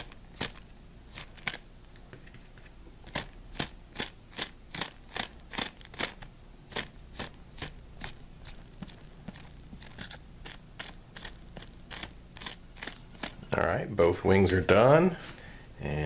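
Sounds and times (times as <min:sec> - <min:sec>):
paintbrush rasping on plastic: 0:03.0 - 0:13.6.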